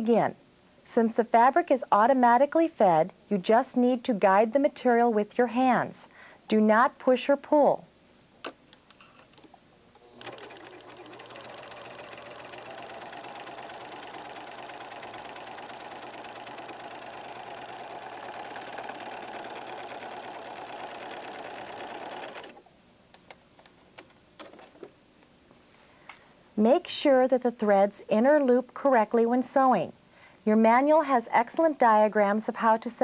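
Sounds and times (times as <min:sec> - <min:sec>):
serger motor stitching: 0:10.0 - 0:22.7.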